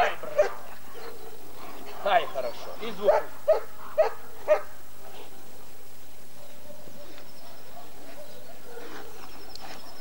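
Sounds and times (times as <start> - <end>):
dog barking: 0.0 - 1.2, 3.0 - 4.7.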